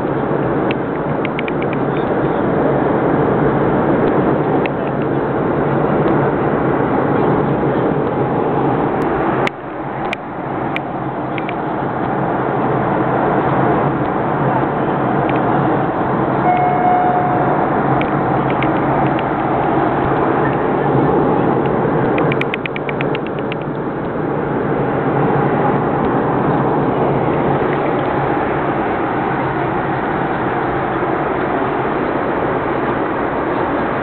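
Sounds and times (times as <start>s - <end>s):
airliner cabin engine drone: 0.0s - 34.0s
short steady tone: 16.4s - 18.6s
quick run of clicks: 21.6s - 23.8s.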